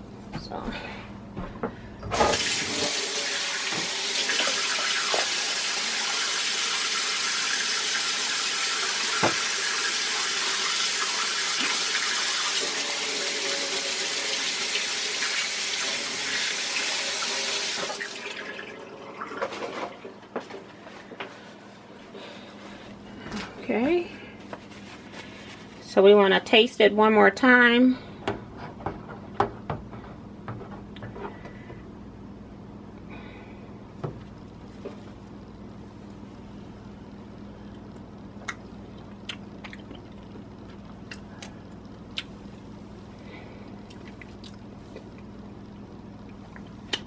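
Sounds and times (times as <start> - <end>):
faucet running into sink: 2.2 - 19.5.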